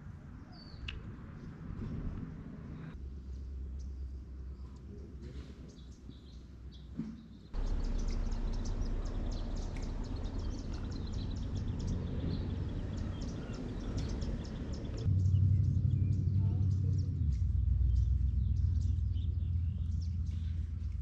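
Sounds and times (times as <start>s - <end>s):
small birds chirping: 0.4s - 2.1s, 3.2s - 21.0s
low steady rumble: 7.6s - 21.0s.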